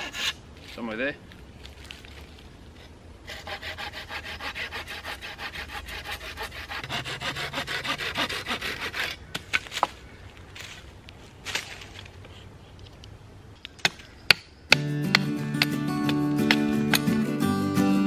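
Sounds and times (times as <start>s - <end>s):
saw cutting through wood: 3.3s - 9.2s.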